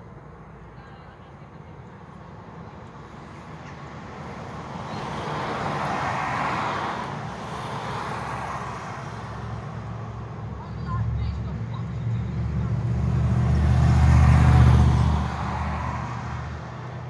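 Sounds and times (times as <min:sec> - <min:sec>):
car driving past: 0:12.0 - 0:16.8.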